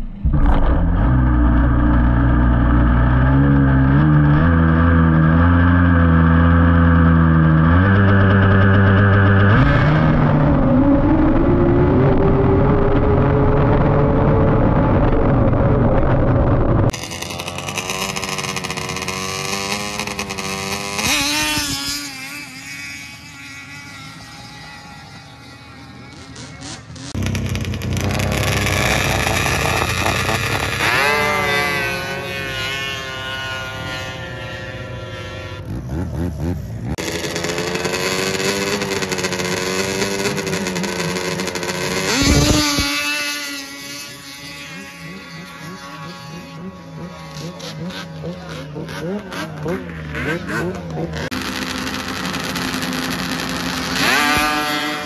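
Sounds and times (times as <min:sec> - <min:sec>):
snowmobile accelerating away: 0:00.0 - 0:55.0
snowmobile engines racing: 0:00.0 - 0:55.0.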